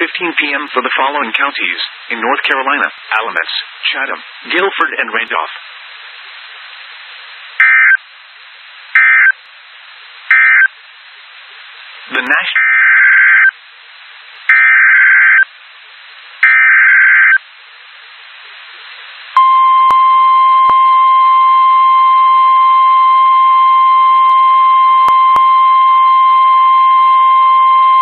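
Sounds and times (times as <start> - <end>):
radio hiss: 0.0 - 19.5
warning alarm tone: 19.4 - 28.0.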